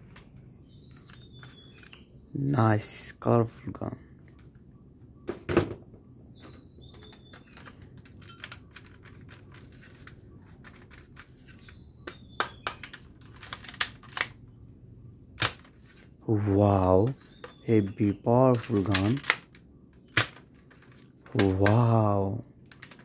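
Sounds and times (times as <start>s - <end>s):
plastic rubbing squeaks: 5.8s - 14.2s, 17.1s - 21.3s
plastic toy gun clicks: 18.5s - 20.4s.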